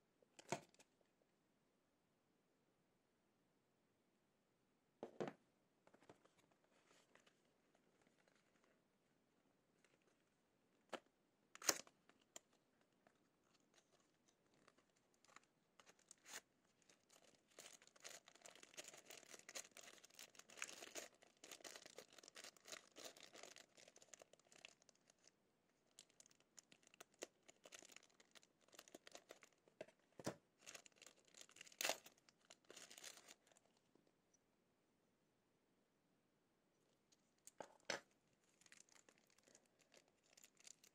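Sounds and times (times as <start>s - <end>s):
plastic bag crinkling: 13.4s - 25.3s, 25.9s - 29.6s, 30.6s - 33.6s, 38.4s - 40.9s.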